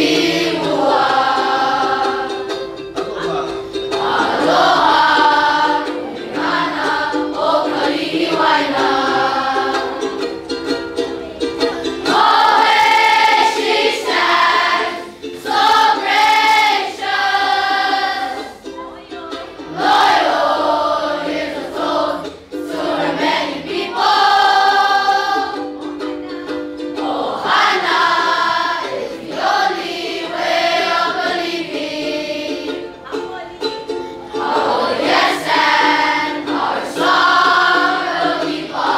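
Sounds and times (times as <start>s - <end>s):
children's choir singing: 0.0s - 38.9s
instrumental accompaniment: 0.0s - 38.9s.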